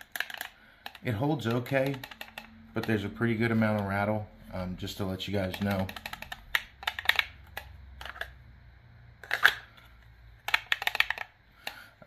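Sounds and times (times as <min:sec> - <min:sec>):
knife rattling in plastic sheath: 0:05.4 - 0:08.2.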